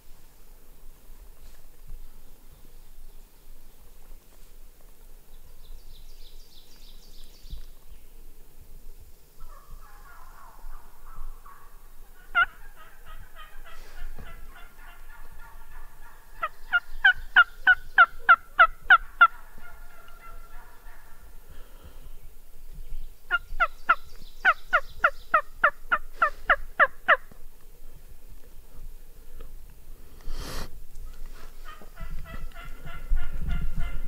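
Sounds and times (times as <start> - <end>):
turkey yelping: 9.4 - 21.3, 23.3 - 27.3, 31.6 - 34.0.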